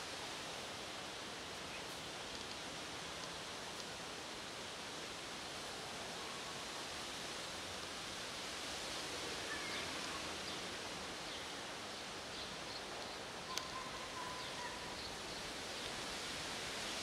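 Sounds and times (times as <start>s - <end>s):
outdoor background hiss: 0.0s - 17.0s
faint bird chirps: 13.5s - 15.4s.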